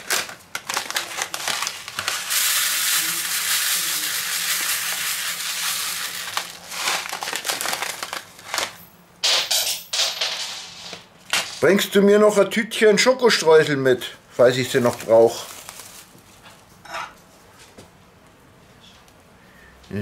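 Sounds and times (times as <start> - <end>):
plastic bag crinkling: 0.0 - 8.9, 14.4 - 16.4
sprinkles pouring onto metal tray: 1.0 - 8.6.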